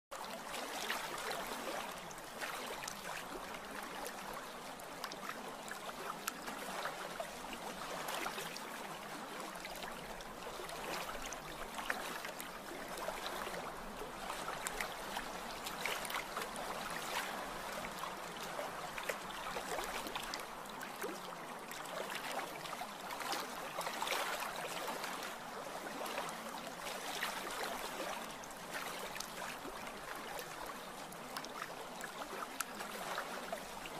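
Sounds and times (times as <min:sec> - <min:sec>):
small water splashes: 0:00.1 - 0:33.9
water lapping and trickling: 0:00.1 - 0:33.9.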